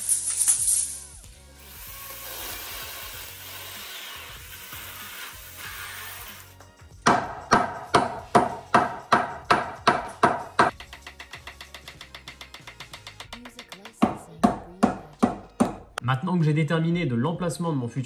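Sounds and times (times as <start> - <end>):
hammer striking metal: 7.0 - 15.8.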